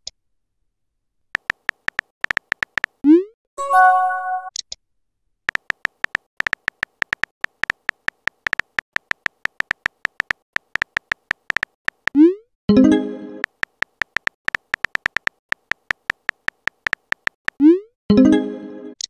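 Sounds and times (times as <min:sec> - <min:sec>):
keyboard typing clicks: 0:01.4 - 0:03.0, 0:05.5 - 0:12.2, 0:13.4 - 0:17.6.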